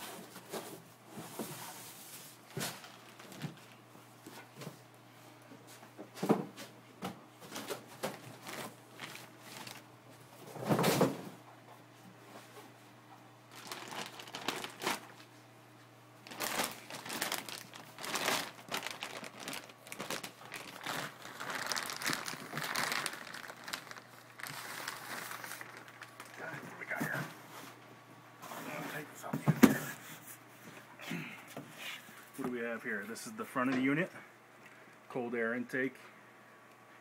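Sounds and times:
plastic bag crinkling: 0:02.4 - 0:03.8, 0:07.5 - 0:09.9, 0:13.5 - 0:15.3, 0:16.2 - 0:27.2.

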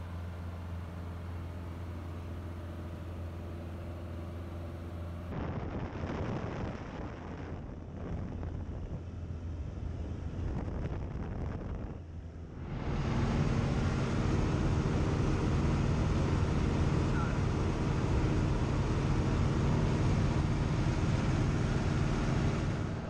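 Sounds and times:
propeller plane engine droning: 0:00.0 - 0:23.0
rough wind noise: 0:05.3 - 0:23.0.

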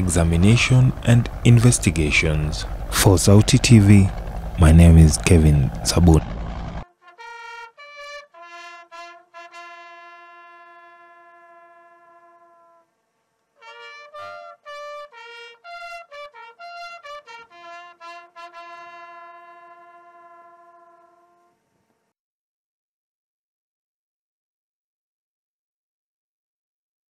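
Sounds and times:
bugle call: 0:00.0 - 0:12.9, 0:13.6 - 0:21.6.

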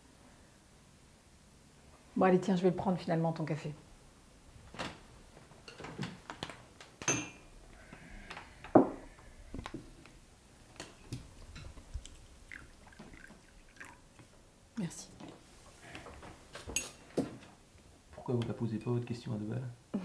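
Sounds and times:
cup clinking: 0:07.0 - 0:07.4, 0:10.8 - 0:14.3.

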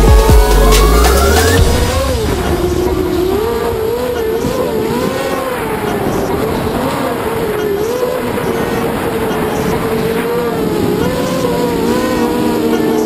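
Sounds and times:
drone motor and propeller whine: 0:00.0 - 0:13.0.

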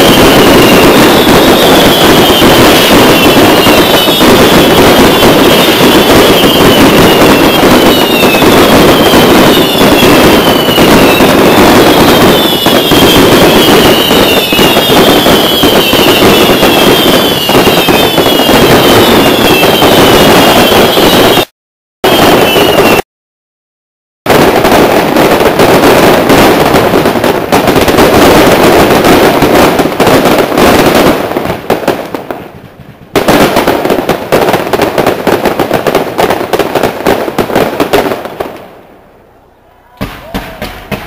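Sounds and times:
falling firework whistle: 0:00.0 - 0:23.1, 0:39.3 - 0:41.0
fireworks bangs and crackling: 0:00.0 - 0:23.1, 0:24.3 - 0:41.0.

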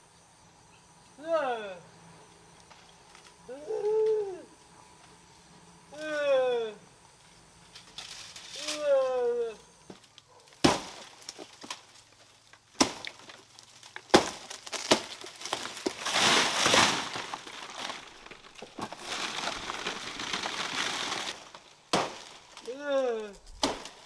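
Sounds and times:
leaves rustling and crackling: 0:07.6 - 0:09.4, 0:10.0 - 0:24.0
dry fronds cracking: 0:07.8 - 0:09.0, 0:10.0 - 0:24.0.

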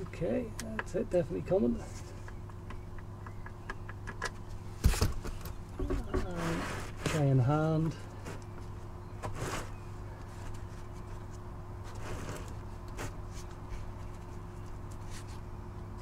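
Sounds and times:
steady low hum: 0:00.0 - 0:16.0
faint rustles: 0:04.4 - 0:16.0.

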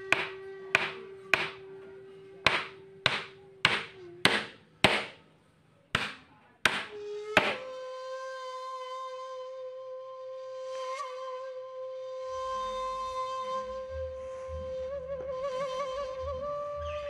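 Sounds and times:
background music: 0:00.0 - 0:05.2
wooden post knocking into joint: 0:00.1 - 0:01.6, 0:02.5 - 0:05.2, 0:06.0 - 0:07.6.

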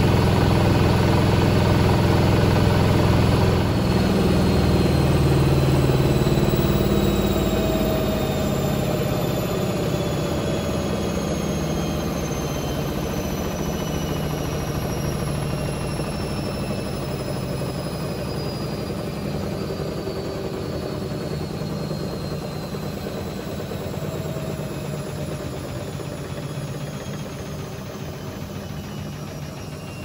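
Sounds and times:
motor low hum: 0:00.0 - 0:30.0
faint falling whine: 0:02.6 - 0:30.0.

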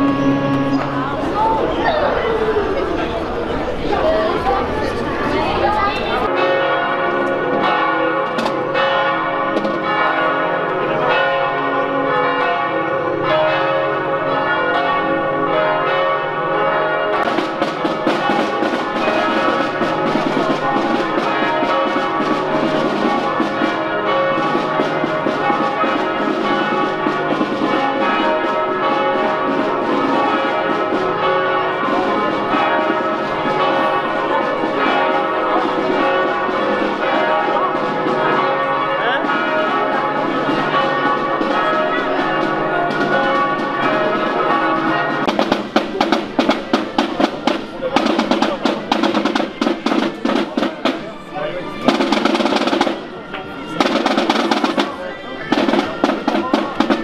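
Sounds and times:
church bells pealing: 0:00.0 - 0:57.0.

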